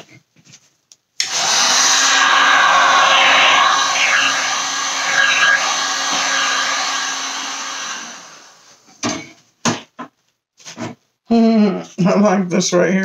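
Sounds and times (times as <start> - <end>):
heat gun blowing air: 1.2 - 8.7.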